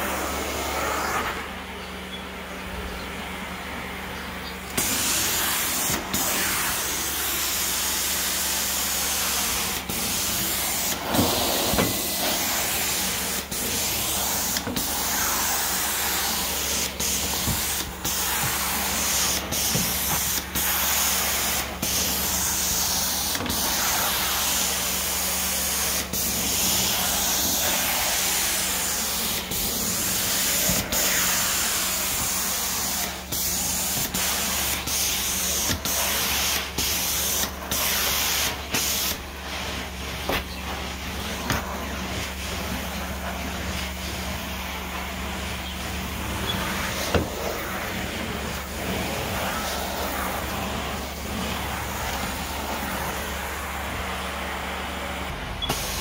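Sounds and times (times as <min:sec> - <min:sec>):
machine low hum: 0:00.0 - 0:04.8.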